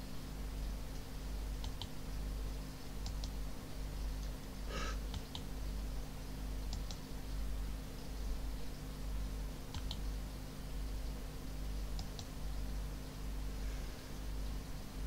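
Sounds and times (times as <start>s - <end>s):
steady low hum: 0.0s - 15.0s
computer mouse clicking: 1.0s - 2.0s, 3.0s - 3.4s, 5.1s - 5.5s, 6.7s - 7.0s, 9.7s - 10.0s, 11.9s - 12.3s.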